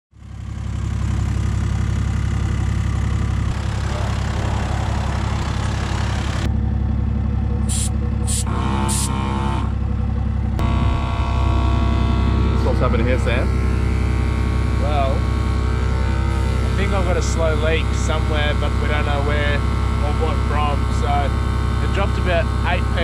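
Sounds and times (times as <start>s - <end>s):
air compressor running: 0.2s - 23.0s
short hissing bursts: 7.7s - 9.1s.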